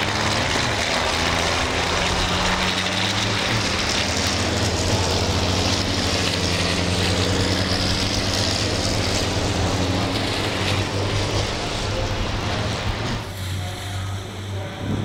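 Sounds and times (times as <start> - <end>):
truck engines droning: 0.0 - 15.0.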